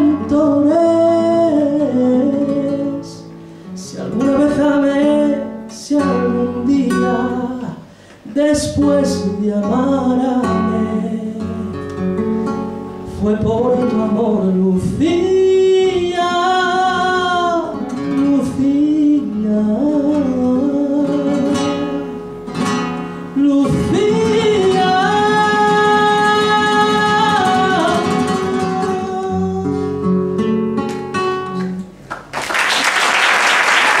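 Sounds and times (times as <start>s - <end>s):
man singing: 0.0s - 11.9s, 13.0s - 22.3s, 23.4s - 30.2s
classical guitar: 0.0s - 32.3s
applause: 32.0s - 34.0s.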